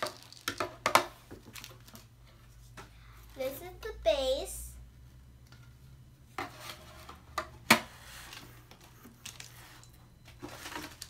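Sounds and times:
plastic scraping on table: 6.4s - 8.6s.

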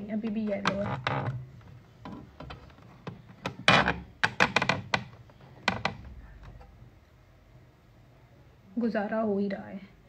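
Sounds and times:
hard objects knocking and clicking: 0.2s - 6.7s.

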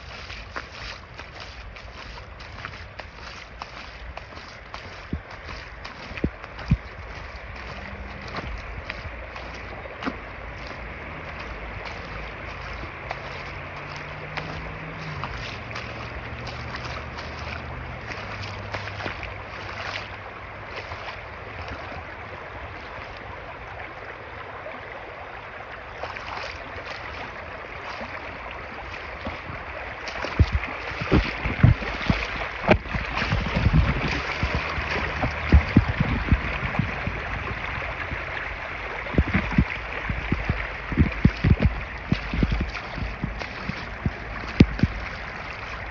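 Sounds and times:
stream running over rocks: 0.0s - 45.9s
water spilling through cascade: 0.0s - 45.9s
low thumps close to microphone: 30.3s - 38.2s, 39.1s - 45.1s.

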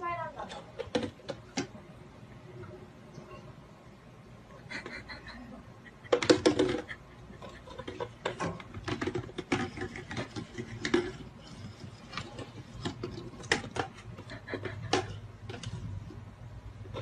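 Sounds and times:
plastic bottle rolling on wooden floor: 7.8s - 14.2s.

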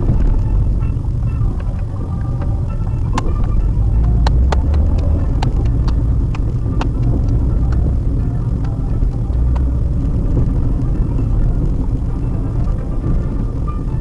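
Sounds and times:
road and engine rumble: 0.0s - 14.0s
sharp clicks and knocks: 0.1s - 8.0s.

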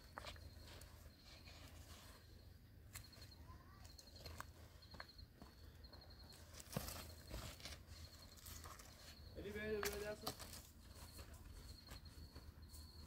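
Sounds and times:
footsteps on stony dirt: 3.8s - 13.0s.

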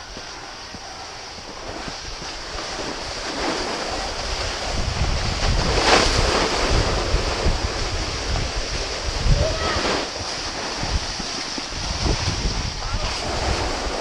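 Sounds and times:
snow hissing underfoot: 0.0s - 14.0s
wind rumbling on microphone: 0.0s - 14.0s.

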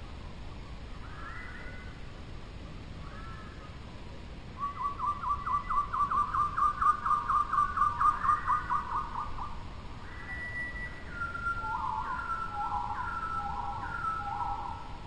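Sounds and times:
long whistled bird notes: 0.9s - 2.0s, 4.6s - 15.0s
bird whistling repeated notes: 4.6s - 9.4s, 10.1s - 14.9s.

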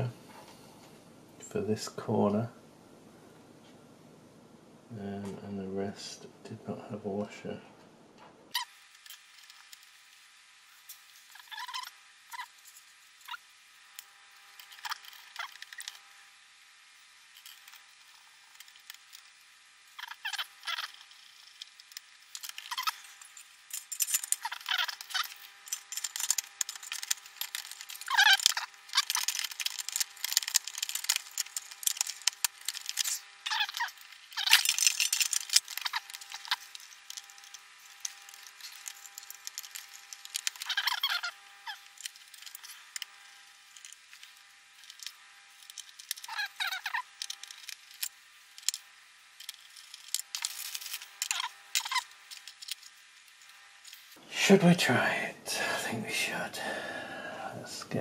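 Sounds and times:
rapid high-pitched clicks and rattles: 8.5s - 54.2s.

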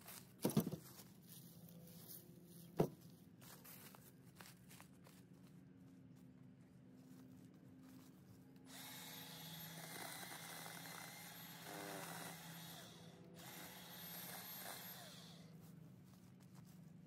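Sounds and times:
power tool running: 8.7s - 15.5s.

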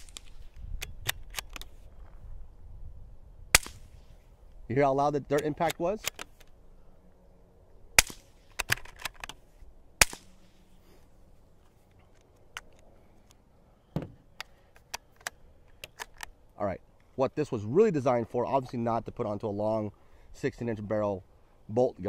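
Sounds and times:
rifle handling clicks: 0.0s - 2.2s, 5.3s - 6.6s, 8.0s - 9.4s, 11.9s - 13.4s, 14.3s - 16.4s
suppressed rifle shots: 3.5s - 4.1s, 8.0s - 8.8s, 10.0s - 10.5s.

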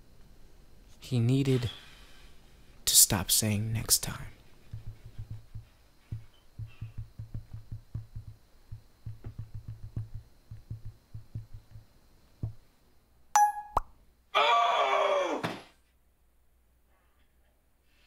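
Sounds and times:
soft typing taps: 4.7s - 12.6s
short bright tone: 13.4s - 13.8s.

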